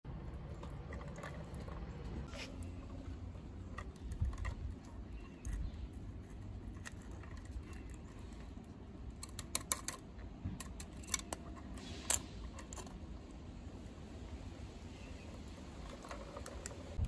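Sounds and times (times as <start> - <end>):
toy truck plastic and metal clicks: 6.7 - 13.0.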